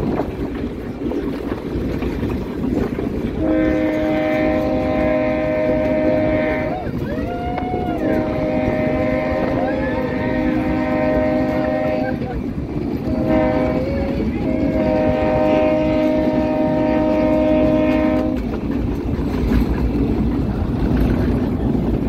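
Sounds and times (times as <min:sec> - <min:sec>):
train rumbling: 0:00.0 - 0:22.0
train horn blasts: 0:03.4 - 0:18.6.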